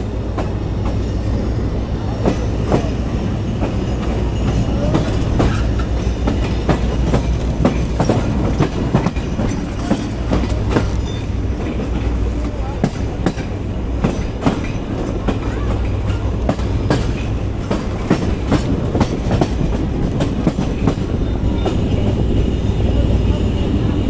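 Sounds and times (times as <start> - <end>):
low rumble of moving coaches: 0.0 - 24.0
train wheels clattering over rail joints: 0.2 - 22.4.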